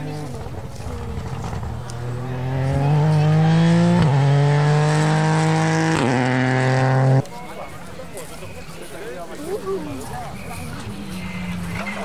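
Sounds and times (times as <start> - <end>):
rally car engine accelerating: 0.0 - 7.2.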